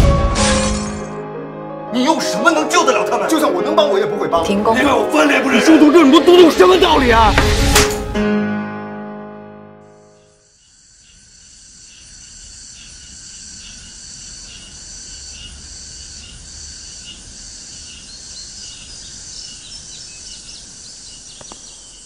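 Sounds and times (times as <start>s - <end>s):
insects chirping: 9.9s - 22.0s.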